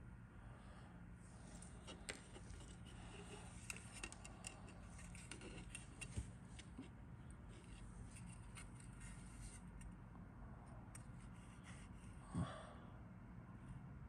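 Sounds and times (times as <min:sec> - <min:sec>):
plastic part clicking and rustling: 0:01.6 - 0:06.9.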